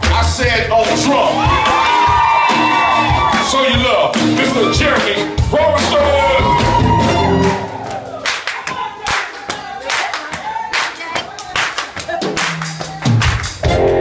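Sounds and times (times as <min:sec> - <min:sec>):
live band playing: 0:00.0 - 0:08.2, 0:11.8 - 0:14.0
handclaps: 0:07.4 - 0:13.8.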